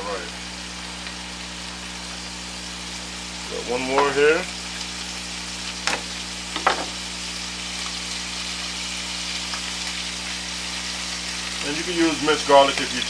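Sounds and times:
oil and onion sizzling in a pot: 0.0 - 13.0
knife knocking on cutting board: 6.6 - 7.0.

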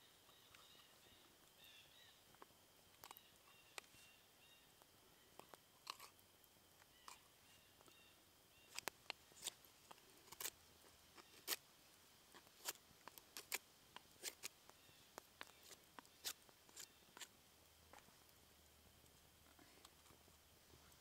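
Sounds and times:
knife shaving wood: 8.7 - 11.6, 12.4 - 14.8, 15.4 - 17.3.

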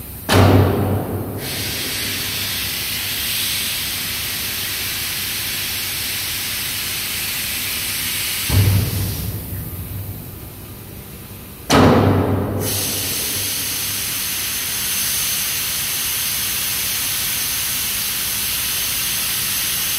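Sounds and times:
compressed air rushing and hissing: 0.8 - 10.2, 12.5 - 18.8.

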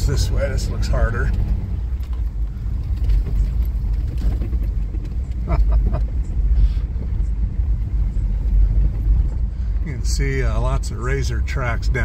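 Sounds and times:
tyres rolling over sand and gravel: 0.0 - 6.3
engine rumble: 0.0 - 12.0.

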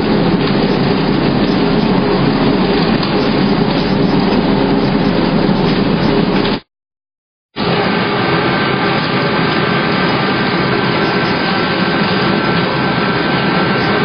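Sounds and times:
sorting machinery running: 0.0 - 6.6.

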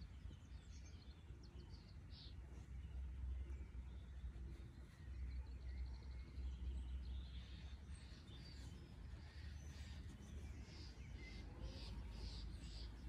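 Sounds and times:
low outdoor rumble: 0.0 - 13.0
faint bird chirps: 0.1 - 13.0.

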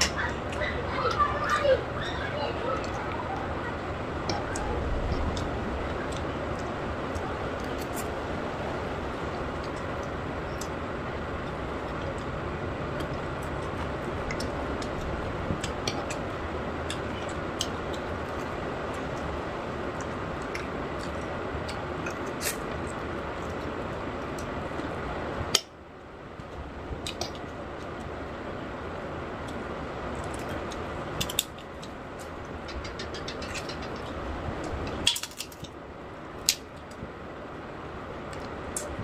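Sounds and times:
steady background noise: 0.0 - 39.0
eating clicks and smacks: 4.2 - 25.7, 26.4 - 28.1, 29.4 - 35.8, 36.4 - 37.1.

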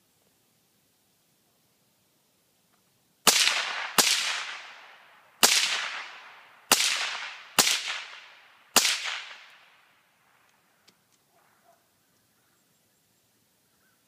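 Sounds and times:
suppressed gunshots: 3.3 - 9.7.

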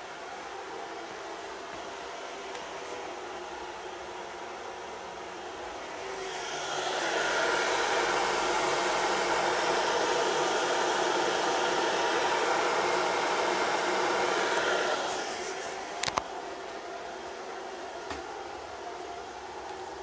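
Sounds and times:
vacuum cleaner running: 0.0 - 20.0
electric kettle heating water: 5.0 - 20.0.

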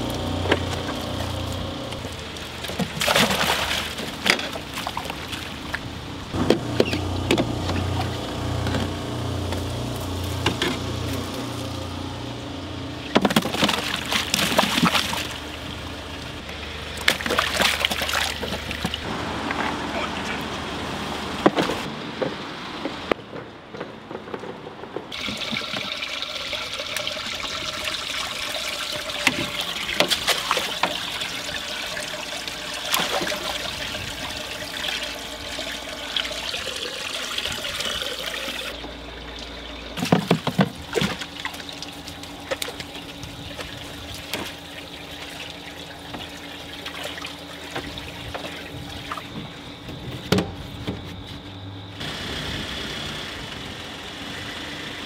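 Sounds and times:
water pouring into fish tank: 25.1 - 43.2.

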